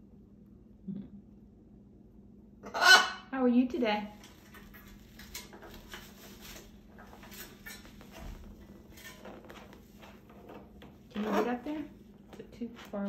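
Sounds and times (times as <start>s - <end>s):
low room hum: 0.0s - 13.0s
faint clicks and rustles: 4.1s - 13.0s.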